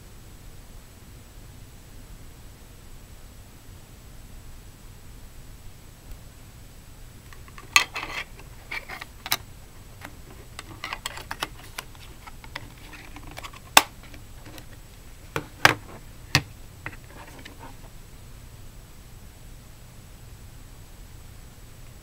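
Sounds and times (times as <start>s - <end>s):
soft scraping of plastic: 7.3s - 9.4s, 10.0s - 16.0s, 16.9s - 17.9s.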